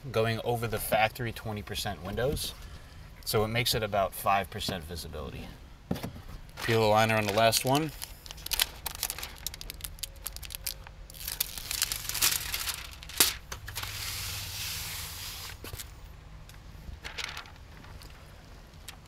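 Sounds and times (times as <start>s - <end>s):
plastic film crackling: 6.6s - 15.9s, 17.0s - 19.0s
steady hiss: 11.8s - 15.9s.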